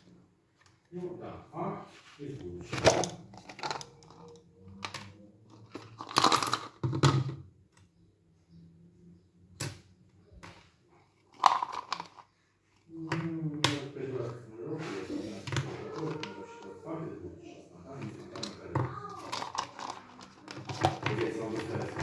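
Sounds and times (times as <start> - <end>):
paper and plastic rustles: 18.0 - 22.0.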